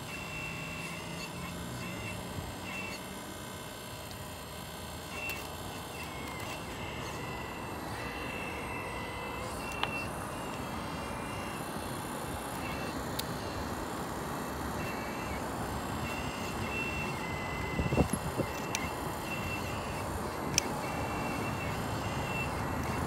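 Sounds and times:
high motor whine: 0:00.0 - 0:23.0
sharp clicks: 0:14.7 - 0:23.0.

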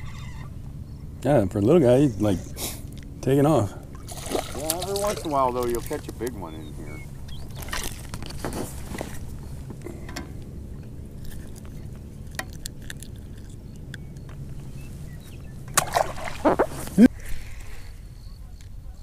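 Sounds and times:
steady low rumble: 0:00.0 - 0:19.0
water splashing and sloshing: 0:02.8 - 0:13.6, 0:14.5 - 0:17.1.

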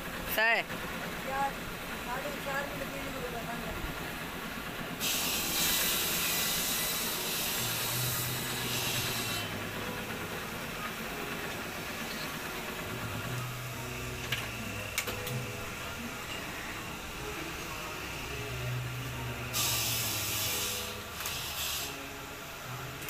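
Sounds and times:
loud hiss: 0:04.9 - 0:09.5, 0:19.5 - 0:22.2.

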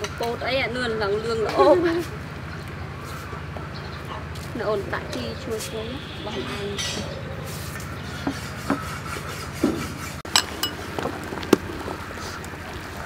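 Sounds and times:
metal ladle clinking: 0:10.3 - 0:10.8.

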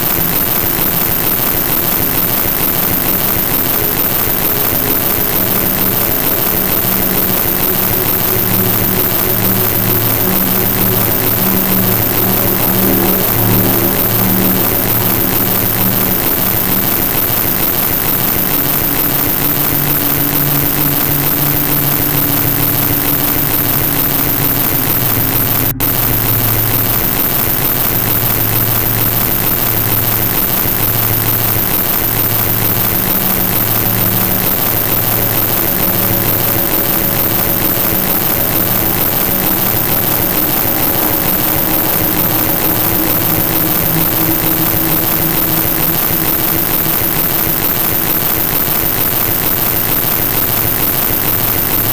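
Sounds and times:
faint low hum tones: 0:00.0 - 0:51.9.

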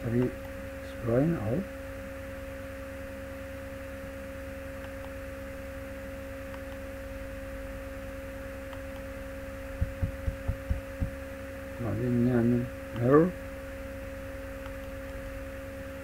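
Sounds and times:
electrical hum and whine: 0:00.0 - 0:16.0.

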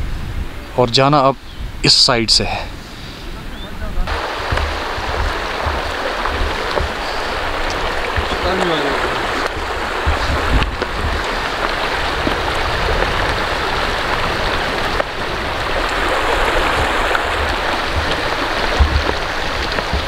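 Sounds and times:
dull low thumps: 0:04.0 - 0:20.0
river rushing over stones: 0:04.0 - 0:20.0.

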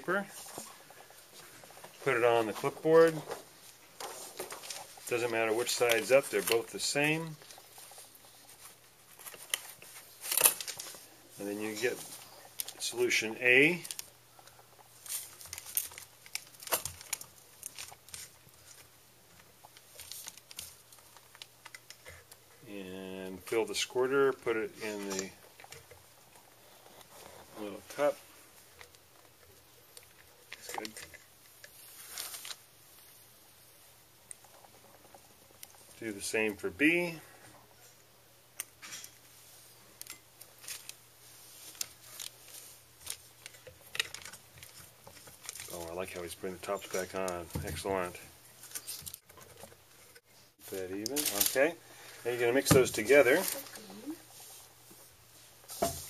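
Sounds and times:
plastic bottles being handled: 0:40.0 - 0:56.0.

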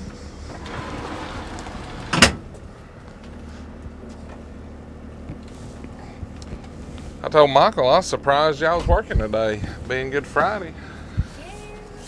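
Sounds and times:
steady low hum: 0:00.0 - 0:12.0
truck door banging shut: 0:01.9 - 0:02.5.

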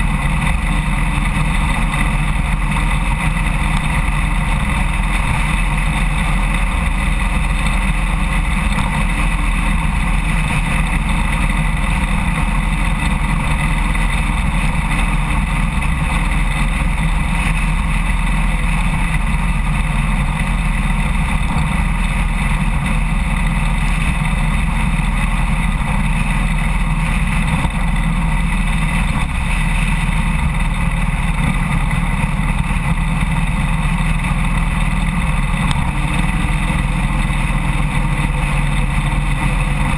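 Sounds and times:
motorcycle engine cruising: 0:00.0 - 0:39.9
road and wind noise: 0:00.0 - 0:39.9.

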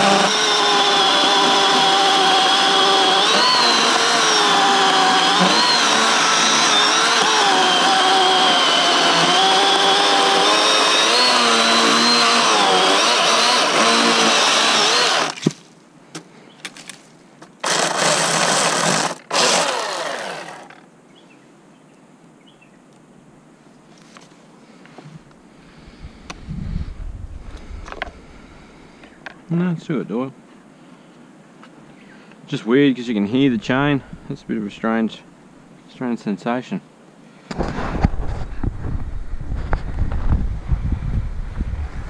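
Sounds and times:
chainsaw trigger bursts: 0:00.0 - 0:15.4, 0:17.6 - 0:20.8
cordless chainsaw cutting log: 0:00.0 - 0:15.6, 0:17.6 - 0:20.8.

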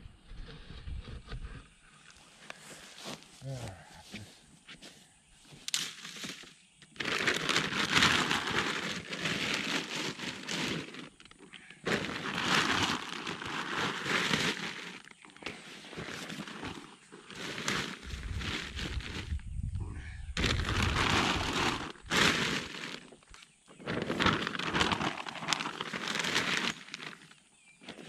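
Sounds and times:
paper sacks rustling and crinkling: 0:05.8 - 0:19.6, 0:20.4 - 0:28.0.

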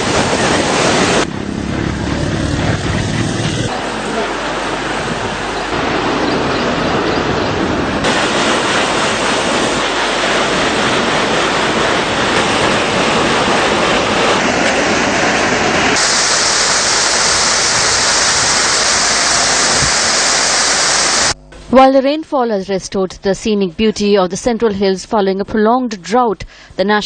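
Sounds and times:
waterfalls roaring: 0:00.0 - 0:21.4.

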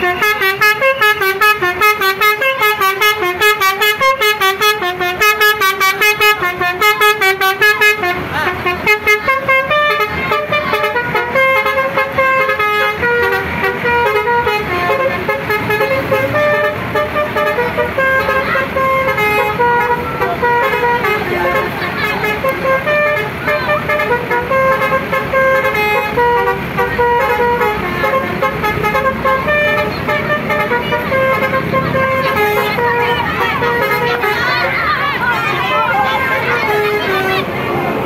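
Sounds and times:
bus multi-tone horn melody: 0:00.0 - 0:38.0.

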